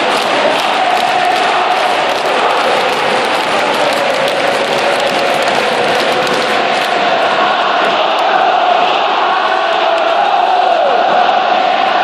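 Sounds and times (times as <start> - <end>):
stadium crowd chanting in unison: 0.0 - 12.0.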